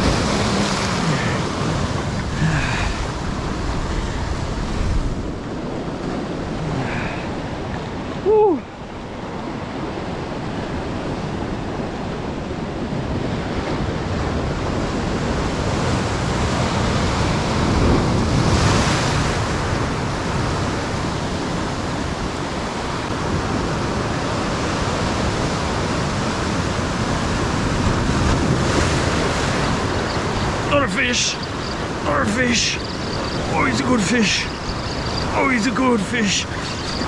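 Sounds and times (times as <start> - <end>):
wave breaking: 0.0 - 7.6, 26.9 - 37.0
wind buffeting microphone: 0.0 - 30.7, 31.4 - 32.1, 32.7 - 35.4, 36.5 - 37.0
surf washing against shore: 0.0 - 37.0.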